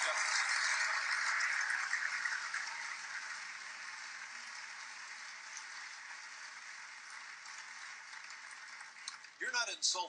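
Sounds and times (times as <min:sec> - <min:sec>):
studio audience applauding: 0:00.0 - 0:10.0.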